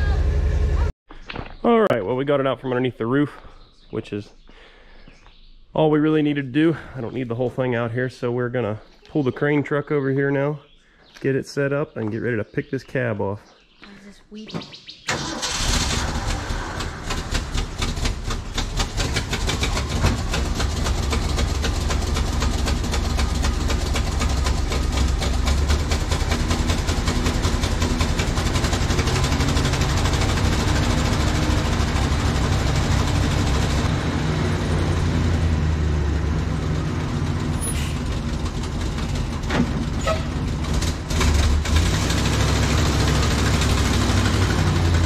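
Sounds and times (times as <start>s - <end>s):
truck engine idling: 0.0s - 0.9s, 15.2s - 45.0s.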